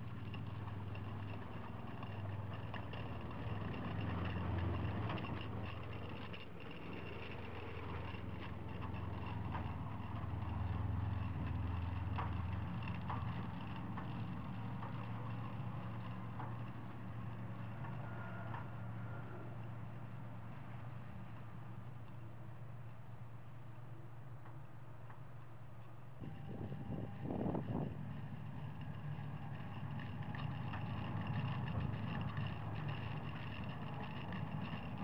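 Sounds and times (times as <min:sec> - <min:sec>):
metallic clinking of tracks: 0:00.0 - 0:23.0, 0:23.6 - 0:35.0
vehicle engine humming: 0:00.0 - 0:35.0.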